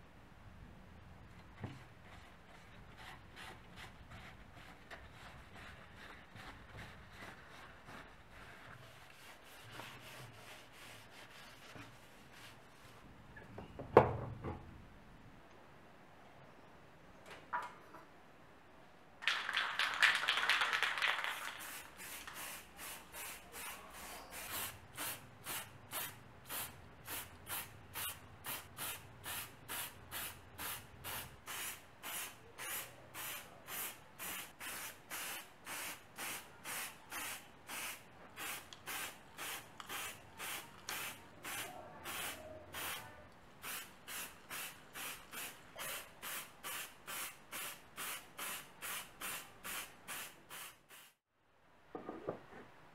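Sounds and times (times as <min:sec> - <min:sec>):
spray paint can spraying: 0:19.3 - 0:43.0, 0:43.6 - 0:51.2.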